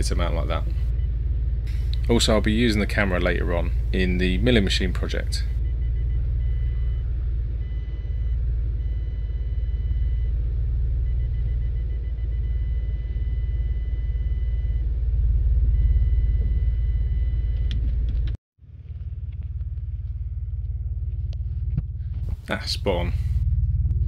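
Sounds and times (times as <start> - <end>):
parking sensor beeping: 0.0 - 18.4
car engine rumble: 0.0 - 24.0.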